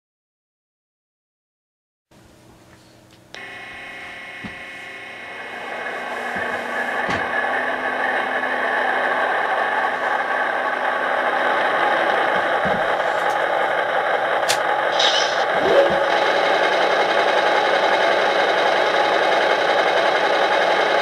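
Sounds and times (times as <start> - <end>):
model train running on track: 3.4 - 21.0.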